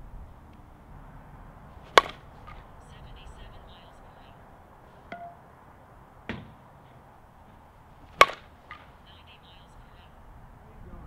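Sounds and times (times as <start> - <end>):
bat cracking against softball: 1.8 - 2.7, 7.5 - 9.1
soft knocks: 6.3 - 6.6.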